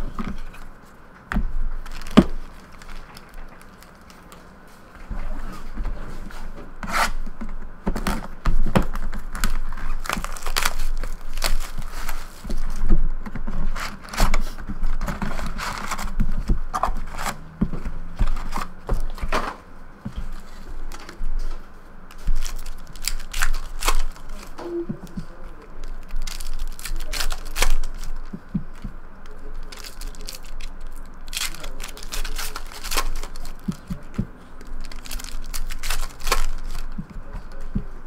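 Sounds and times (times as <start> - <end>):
foil packs crinkling and clicking: 1.7 - 4.5, 7.9 - 12.9, 22.1 - 37.8.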